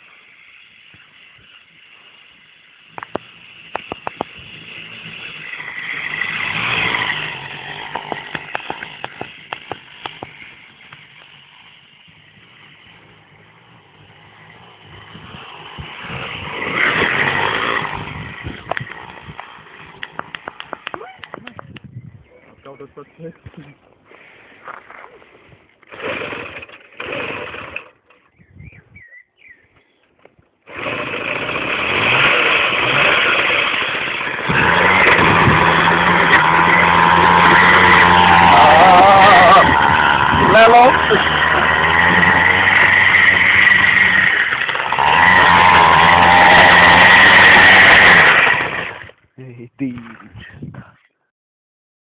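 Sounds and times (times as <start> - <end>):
moped engine approaching: 0.0 - 21.8, 30.6 - 49.2.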